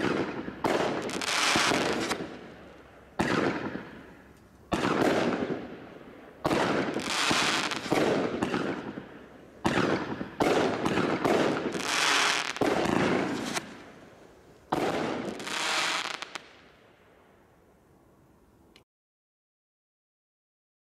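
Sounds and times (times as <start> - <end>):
firework bangs: 0.0 - 2.5, 3.2 - 4.1, 4.7 - 5.8, 6.4 - 13.8, 14.7 - 16.5.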